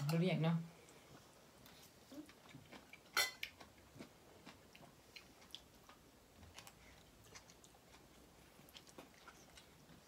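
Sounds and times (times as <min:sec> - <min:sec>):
cutlery clinking on plates: 0:03.1 - 0:03.5.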